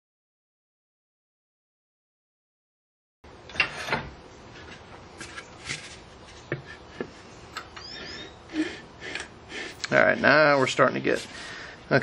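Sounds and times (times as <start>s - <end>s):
wood knocking and rubbing on wood: 4.6s - 7.8s.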